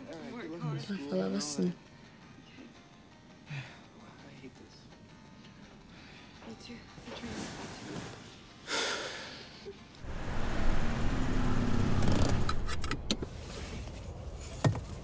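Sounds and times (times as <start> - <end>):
sharp clicks: 10.0 - 13.3
vehicle passing: 10.0 - 13.7.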